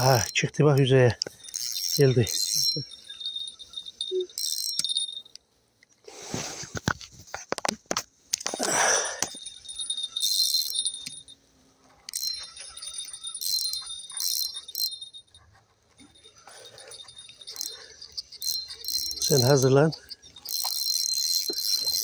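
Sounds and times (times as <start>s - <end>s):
fishing reel buzzing: 0.0s - 0.4s, 1.2s - 5.4s, 8.6s - 11.3s, 12.1s - 15.1s, 16.5s - 22.0s.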